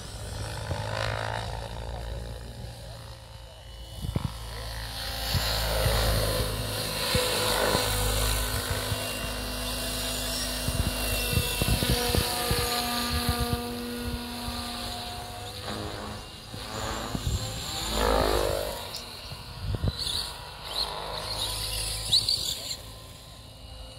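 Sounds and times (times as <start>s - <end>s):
motor and gears whining: 0.0s - 23.9s
rotor blades whooshing: 4.0s - 23.2s.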